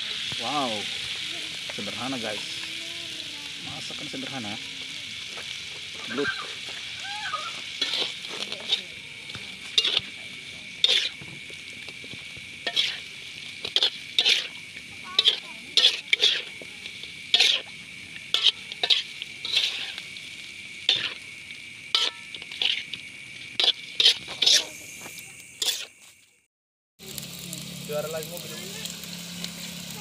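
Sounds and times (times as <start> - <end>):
fish sizzling in oil: 0.0 - 30.0
spatula scraping a wok: 3.8 - 26.2.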